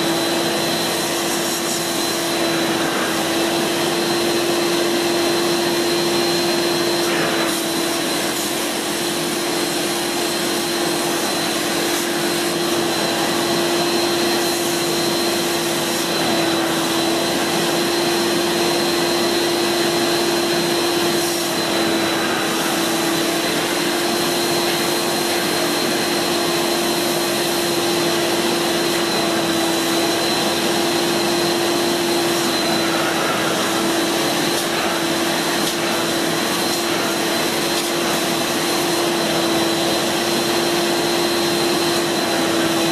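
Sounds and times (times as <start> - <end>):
vacuum suction motor whining: 0.0 - 42.9.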